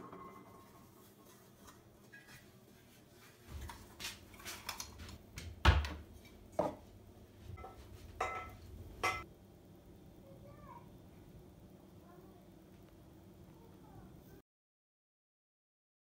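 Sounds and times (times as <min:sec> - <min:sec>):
cookware clinking and knocking: 0:07.6 - 0:09.3.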